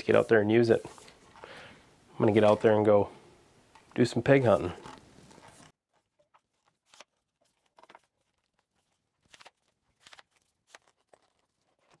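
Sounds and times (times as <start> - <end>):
tripod legs knocking and rustling: 3.7 - 8.2.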